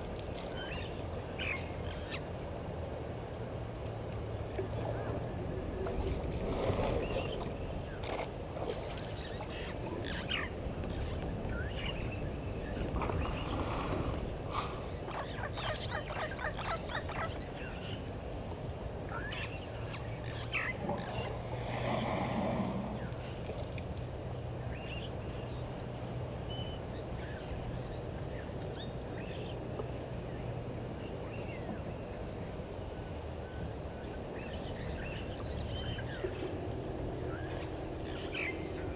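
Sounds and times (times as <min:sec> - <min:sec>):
insect chirping: 0:00.0 - 0:38.9
frogs calling: 0:00.5 - 0:23.6, 0:24.2 - 0:38.9
birds calling: 0:04.7 - 0:18.1, 0:19.1 - 0:21.5, 0:33.6 - 0:38.9.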